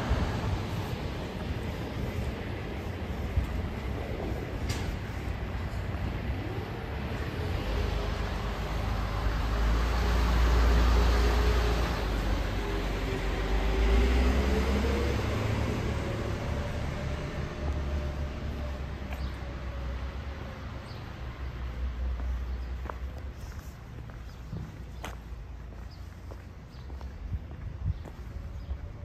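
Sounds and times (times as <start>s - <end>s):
passing vehicle rumble: 0.0s - 25.7s.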